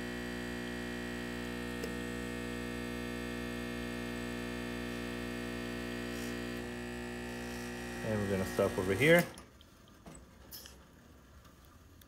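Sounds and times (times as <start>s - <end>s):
espresso machine pump humming: 0.0s - 9.4s.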